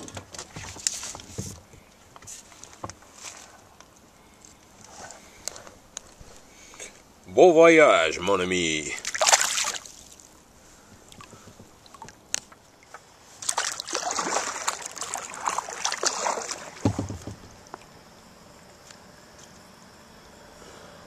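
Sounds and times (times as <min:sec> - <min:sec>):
water splashing around a kayak: 0:08.9 - 0:17.9
dull low thump: 0:16.8 - 0:17.7.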